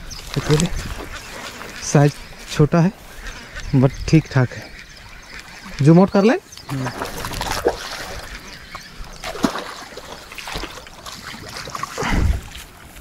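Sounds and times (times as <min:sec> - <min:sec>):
fish splashing in water: 0:06.7 - 0:12.6.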